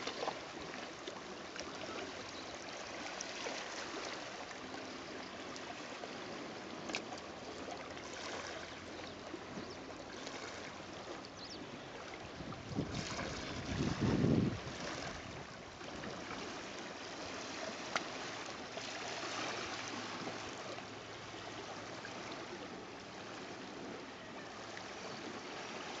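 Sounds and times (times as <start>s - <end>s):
sea water lapping on rocks: 12.5s - 20.9s.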